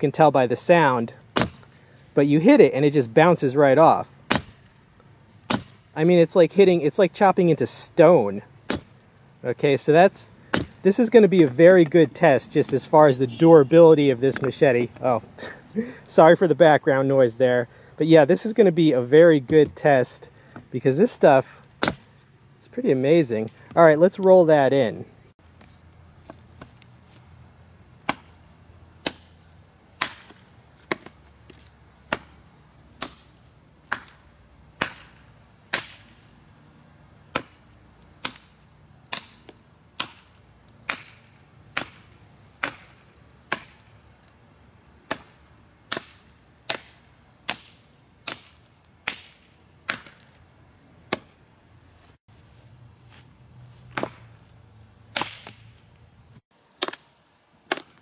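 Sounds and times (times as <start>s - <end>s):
insect drone: 0.0s - 58.0s
machete chopping branch: 1.3s - 1.8s, 4.3s - 4.8s, 5.4s - 5.8s, 8.7s - 9.0s, 10.5s - 11.6s, 21.8s - 22.2s, 28.0s - 28.4s, 29.0s - 29.3s, 30.0s - 32.4s, 33.0s - 36.2s, 37.3s - 43.9s, 45.1s - 50.4s, 51.1s - 51.4s, 53.9s - 54.4s, 55.1s - 55.7s, 56.8s - 57.1s, 57.7s - 58.0s.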